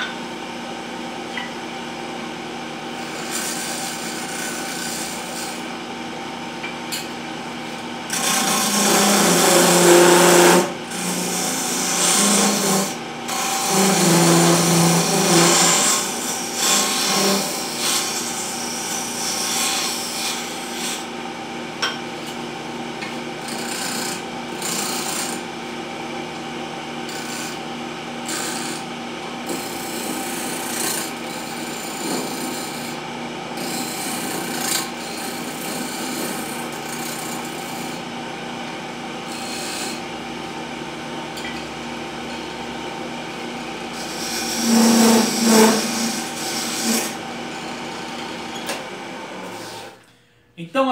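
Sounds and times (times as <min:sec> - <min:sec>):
chisel scraping spinning wood: 0:03.0 - 0:05.7, 0:08.1 - 0:21.1, 0:23.4 - 0:25.6, 0:27.1 - 0:38.1, 0:39.3 - 0:40.0, 0:43.9 - 0:48.8
lathe motor hum: 0:07.8 - 0:21.4, 0:26.4 - 0:49.9.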